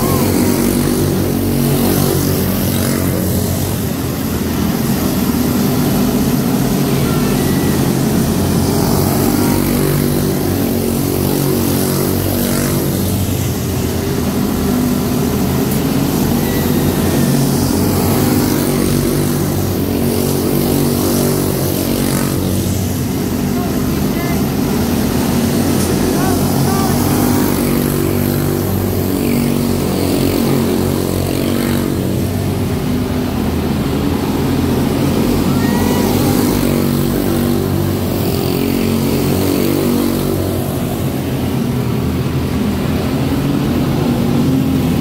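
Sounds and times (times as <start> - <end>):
race car engines on dirt oval: 0.0 - 45.0.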